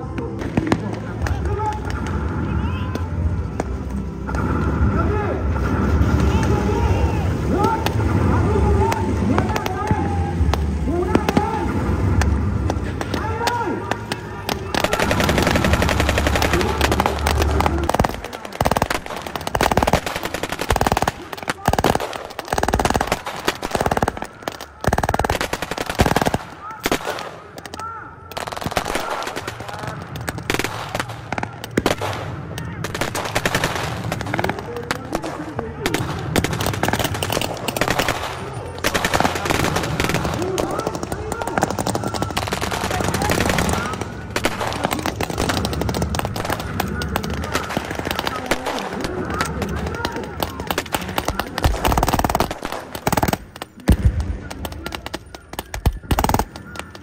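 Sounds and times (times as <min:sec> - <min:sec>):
single gunshots: 0:07.6 - 0:56.9
automatic gunfire bursts: 0:12.7 - 0:57.0
single rifle shots: 0:12.7 - 0:57.0.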